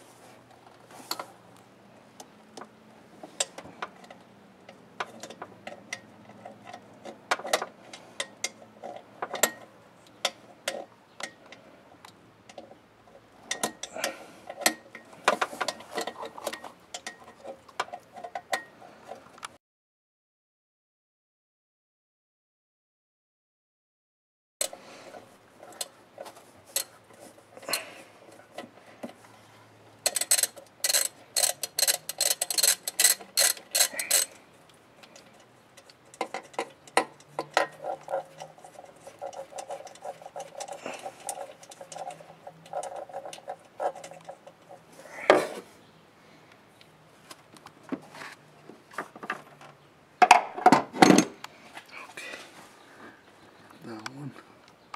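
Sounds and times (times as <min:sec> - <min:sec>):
ratchet wrench clicking: 0:30.1 - 0:34.3.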